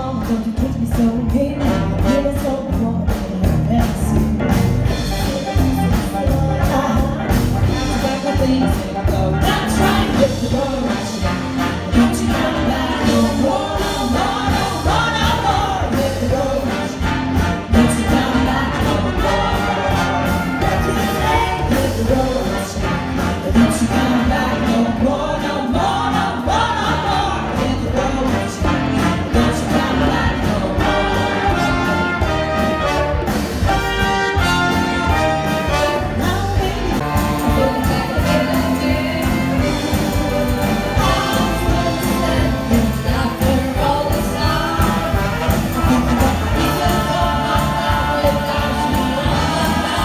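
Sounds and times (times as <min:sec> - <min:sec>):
drums: 0:00.0 - 0:50.0
brass section: 0:04.9 - 0:50.0
women singing together: 0:05.1 - 0:11.3, 0:12.0 - 0:17.0, 0:17.8 - 0:22.7, 0:23.5 - 0:31.6, 0:36.2 - 0:50.0.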